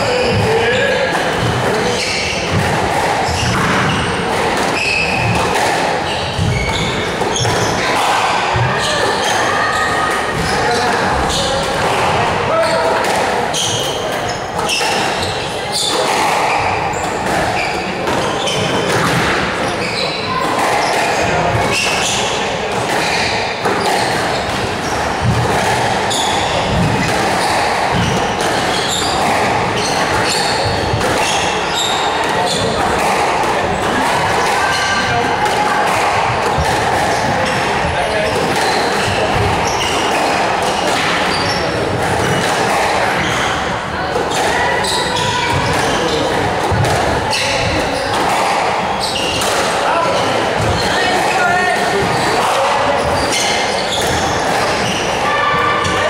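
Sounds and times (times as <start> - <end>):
shoes squeaking on wooden floor: 0.0 - 35.2, 35.9 - 43.7, 47.3 - 56.0
squash ball thudding: 0.3 - 9.4, 20.4 - 44.6, 45.2 - 52.7.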